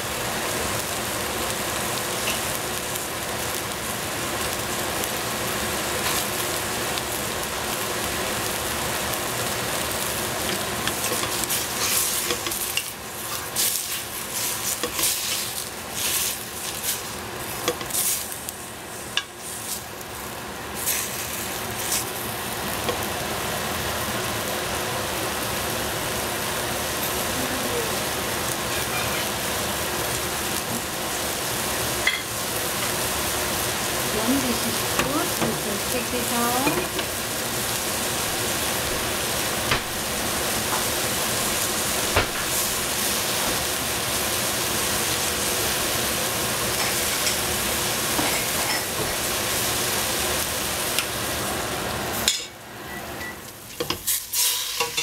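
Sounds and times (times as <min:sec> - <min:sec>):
greens sizzling in a pot: 0:00.0 - 0:55.0.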